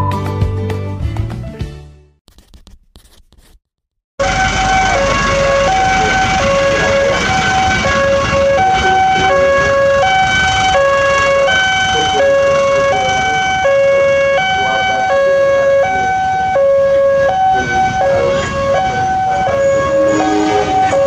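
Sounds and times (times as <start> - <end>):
level crossing two-tone alarm: 4.2 - 21.0
low rumble of traffic: 4.2 - 21.0.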